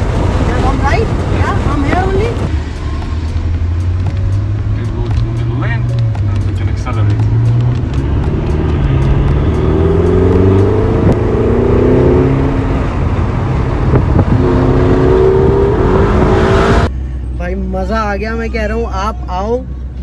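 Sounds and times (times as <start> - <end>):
car engine accelerating: 0.0 - 17.6.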